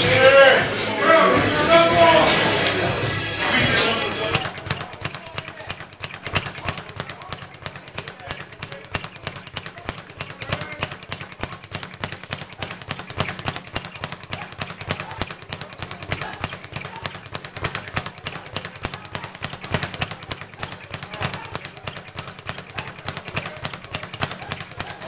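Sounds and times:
speed bag rattling: 1.7s - 25.0s.

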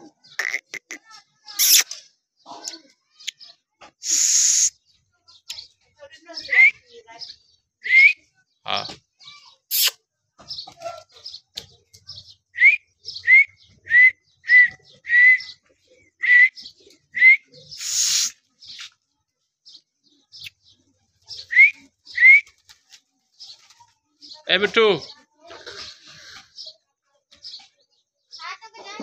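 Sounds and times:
parakeet chirping: 1.6s - 1.9s.

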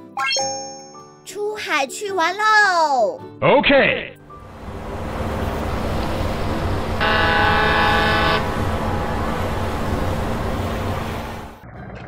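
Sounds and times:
ship's horn blast: 4.4s - 11.6s
low rumble: 8.4s - 11.7s.

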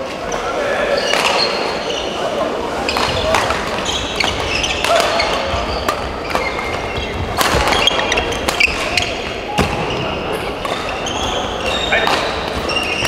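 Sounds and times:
shoes squeaking on court: 0.1s - 13.0s
racket hitting shuttlecock: 2.9s - 9.8s.

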